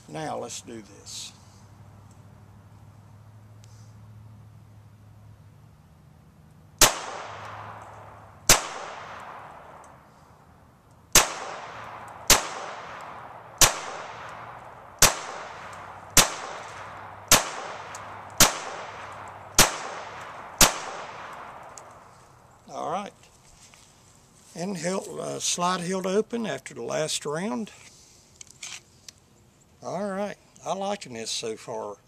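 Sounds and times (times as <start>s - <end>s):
pistol shots: 6.8s - 9.8s, 11.1s - 21.9s.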